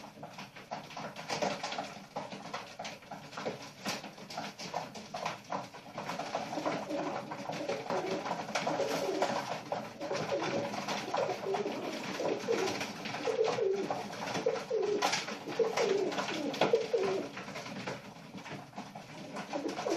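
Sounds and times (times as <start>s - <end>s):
pigeons cooing: 6.0s - 17.5s, 19.1s - 19.9s.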